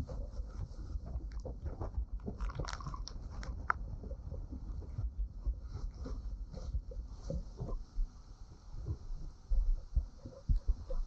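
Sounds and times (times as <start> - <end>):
raindrops tapping on camera: 0.6 - 4.6.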